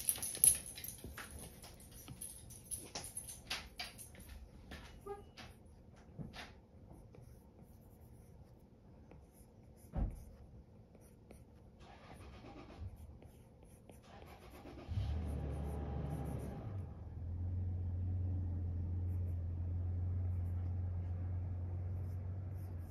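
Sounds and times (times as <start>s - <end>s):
knock: 9.9s - 10.2s.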